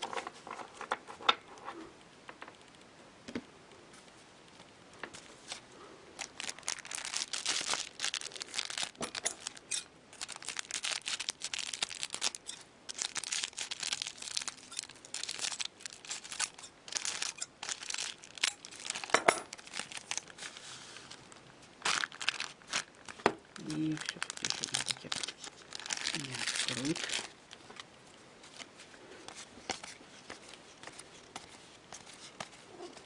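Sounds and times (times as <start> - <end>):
foil wrappers crinkling and tearing: 6.2 - 27.8
cards being handled: 28.4 - 33.0.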